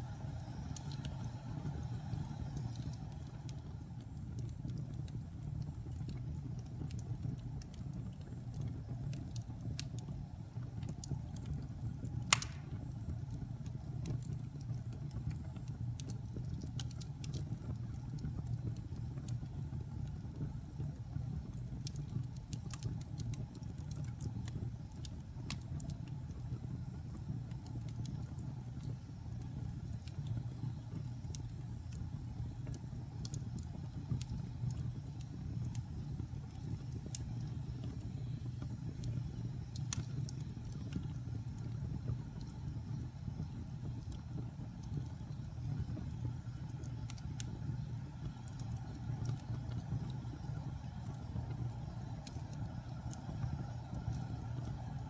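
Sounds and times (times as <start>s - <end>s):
fire crackling: 0.0s - 55.0s
wood fire rumble: 0.0s - 55.0s
loud pop from fire: 12.2s - 13.0s.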